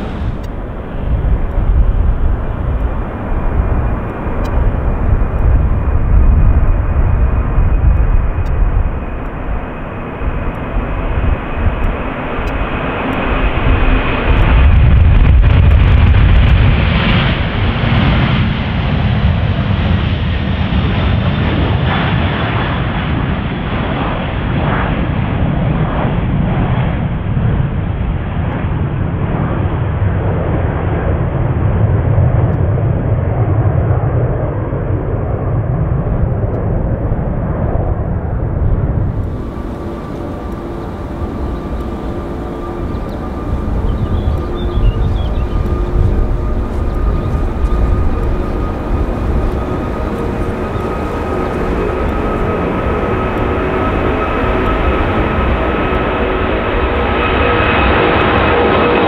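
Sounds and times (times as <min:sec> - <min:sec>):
aircraft engines rumbling: 0:00.0 - 0:59.0
faint high whine: 0:39.0 - 0:58.9.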